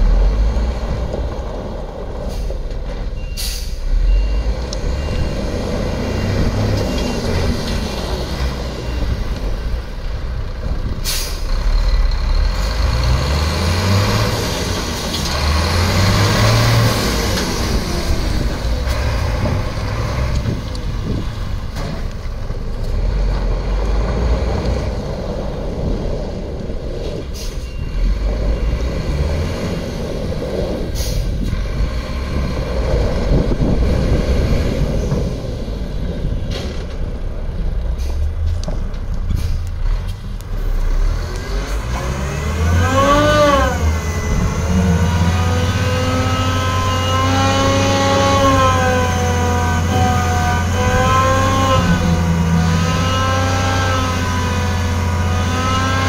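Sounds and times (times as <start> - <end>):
truck diesel engine revving: 0.0 - 56.0
reversing alarm beeping: 3.2 - 7.5.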